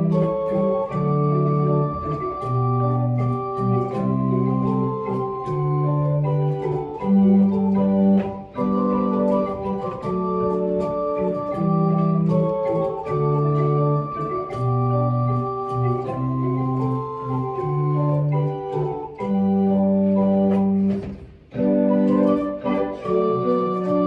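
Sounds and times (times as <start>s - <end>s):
pipe organ playing: 0.0s - 24.0s.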